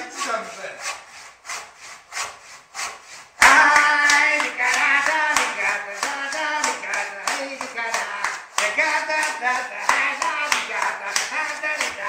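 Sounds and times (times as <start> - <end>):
hand saw cutting wood: 0.0 - 12.0
hand claps: 3.4 - 12.0
man singing loudly: 3.4 - 12.0.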